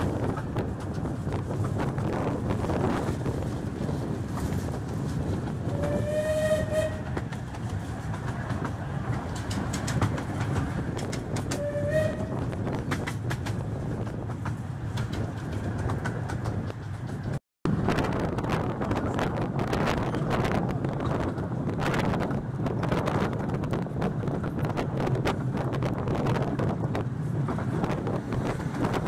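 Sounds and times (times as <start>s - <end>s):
rail-joint clicks: 0.0s - 17.4s
train rumble: 0.0s - 29.0s
steam locomotive whistle: 5.7s - 7.2s, 11.5s - 12.4s.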